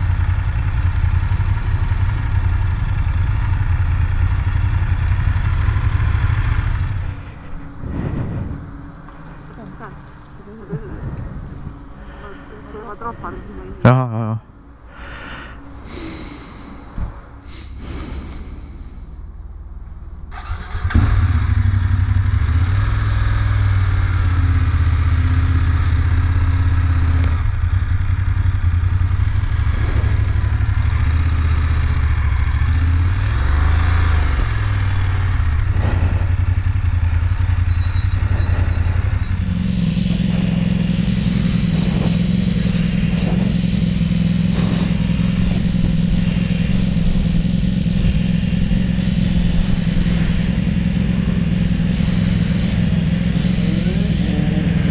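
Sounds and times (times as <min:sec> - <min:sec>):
motorcycle engine running: 0:00.0 - 0:13.7, 0:17.6 - 0:54.9.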